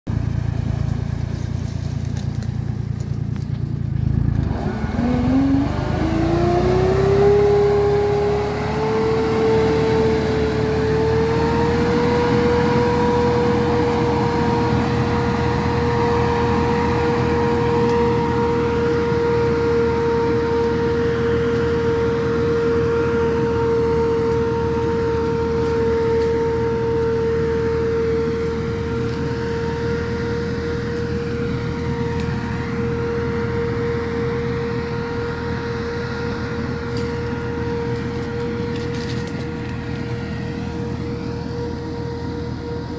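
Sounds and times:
sprayer fan whine: 0.1s - 42.9s
tractor engine running: 0.1s - 42.9s.

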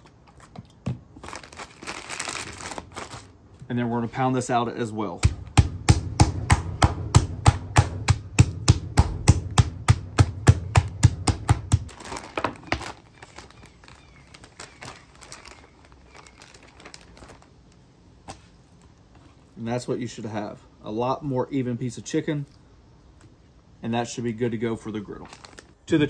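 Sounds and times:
plastic bag crinkling: 0.0s - 3.6s, 11.9s - 17.9s, 25.0s - 25.8s
meat mallet pounding: 5.2s - 11.9s.

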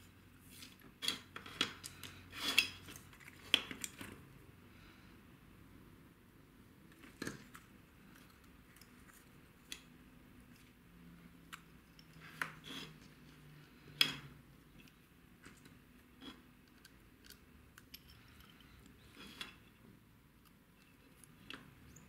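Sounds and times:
small clicks and taps of parts: 6.9s - 10.8s, 16.6s - 22.0s.

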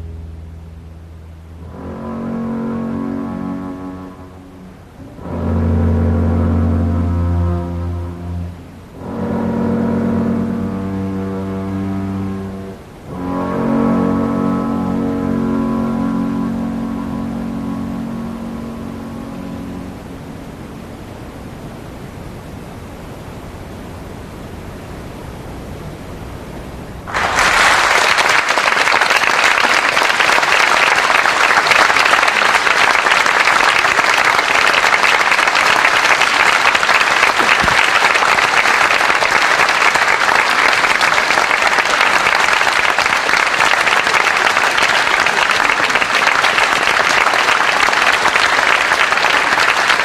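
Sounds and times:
audience applauding: 27.1s - 50.0s.

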